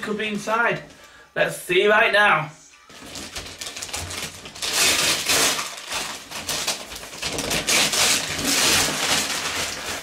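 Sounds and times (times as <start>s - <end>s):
wrapping paper tearing: 2.9s - 10.0s.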